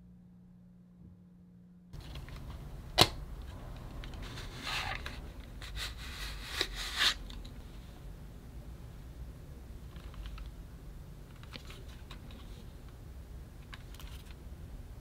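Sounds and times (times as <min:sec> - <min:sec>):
cardboard scraping and rustling: 0:04.1 - 0:07.3.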